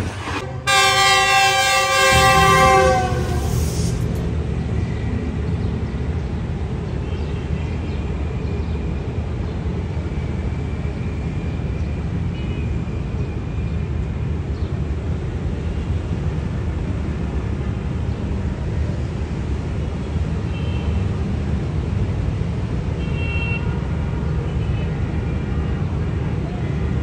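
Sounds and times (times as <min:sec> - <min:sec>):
locomotive low rumble: 0:00.0 - 0:06.7.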